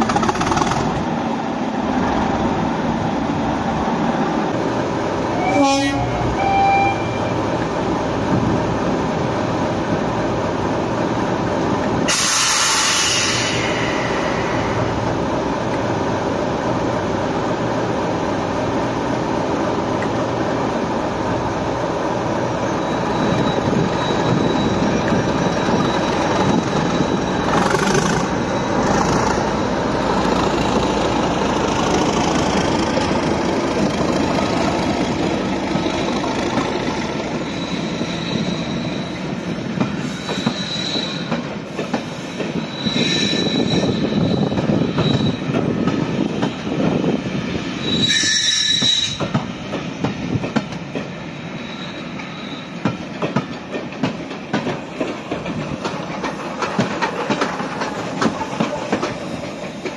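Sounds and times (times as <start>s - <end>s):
train wheels clicking over rail joints: 0.0s - 1.2s, 23.3s - 38.0s, 39.6s - 46.8s, 48.7s - 59.9s
diesel locomotive engine running: 12.7s - 40.6s
high-pitched wheel squeals: 22.6s - 29.6s, 36.8s - 39.3s, 40.0s - 41.4s, 42.5s - 45.5s, 47.7s - 49.3s, 51.5s - 52.8s.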